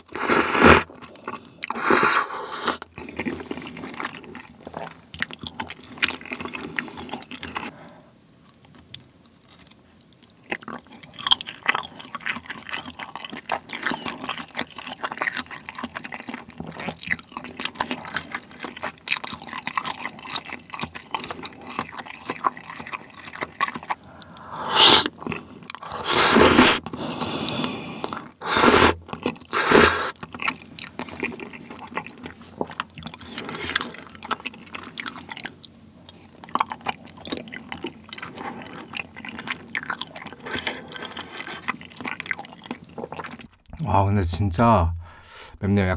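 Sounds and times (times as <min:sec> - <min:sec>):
loud noodle slurps: 0:00.0 - 0:00.9, 0:01.7 - 0:02.8, 0:24.2 - 0:30.2
wet sticky chewing: 0:00.0 - 0:07.7, 0:08.5 - 0:43.8.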